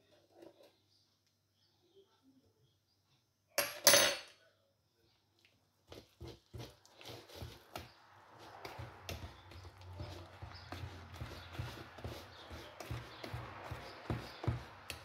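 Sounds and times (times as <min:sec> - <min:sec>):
whisk beating batter in bowl: 0:05.8 - 0:15.0.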